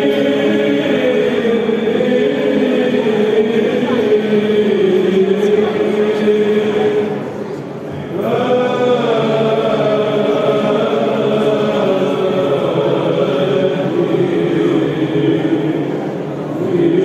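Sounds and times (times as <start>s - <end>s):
group chanting long melodic notes: 0.0s - 17.0s.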